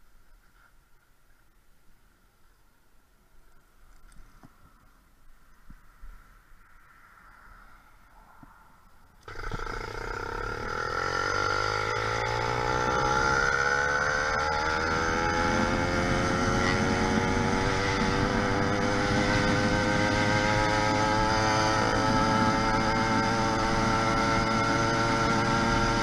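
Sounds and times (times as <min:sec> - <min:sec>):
two-stroke engine running: 0:09.2 - 0:26.0.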